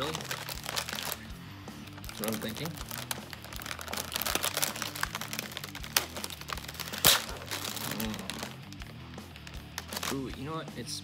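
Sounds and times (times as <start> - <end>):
plastic packaging crinkling: 0.0 - 10.4
soft background music: 0.0 - 11.0
sharp plastic snaps: 4.2 - 8.0.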